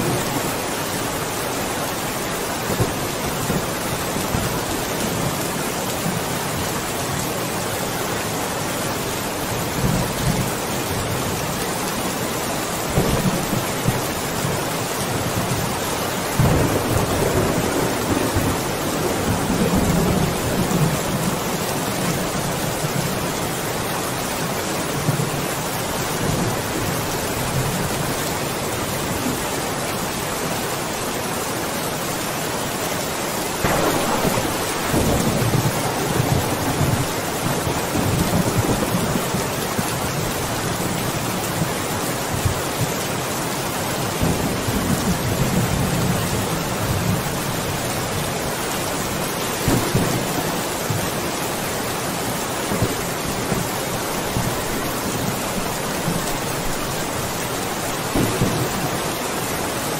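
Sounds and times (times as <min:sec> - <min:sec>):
steady rain hissing: 0:00.0 - 0:59.9
low rumbles of thunder: 0:33.6 - 0:39.4.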